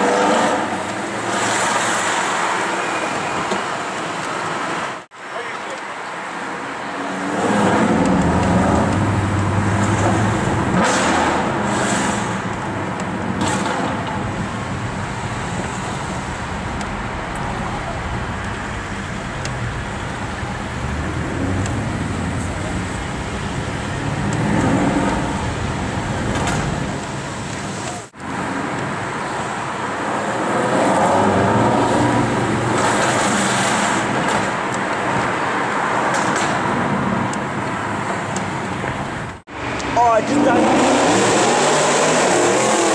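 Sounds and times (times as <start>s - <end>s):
road and traffic noise: 0.0s - 42.9s
car engine revving: 7.0s - 28.6s, 39.5s - 42.9s.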